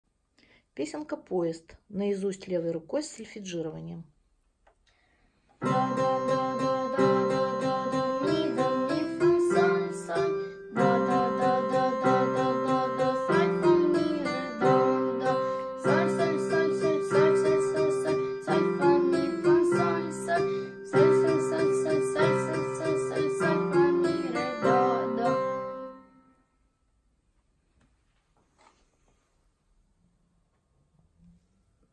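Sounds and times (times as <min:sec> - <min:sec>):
child singing note names: 0:05.6 - 0:26.0
electronic keyboard tune: 0:05.6 - 0:26.3.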